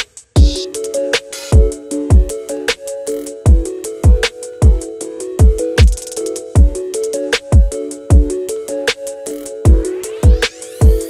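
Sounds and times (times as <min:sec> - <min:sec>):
hi-hat and snare hits: 0:00.0 - 0:11.0
deep kick drums: 0:00.4 - 0:00.6, 0:01.6 - 0:02.4, 0:03.5 - 0:06.0, 0:06.6 - 0:06.8, 0:07.5 - 0:08.4, 0:09.7 - 0:11.0
synth melody: 0:00.4 - 0:11.0.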